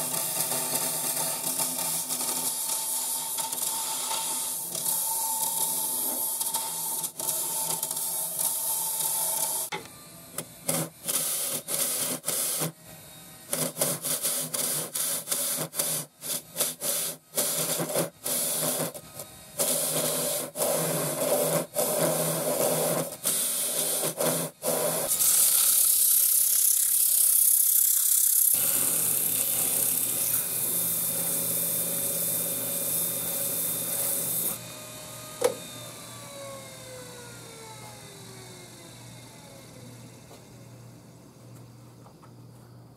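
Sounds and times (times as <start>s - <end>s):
gouge cutting wood on lathe: 19.6s - 34.6s
lathe motor hum: 23.6s - 41.1s.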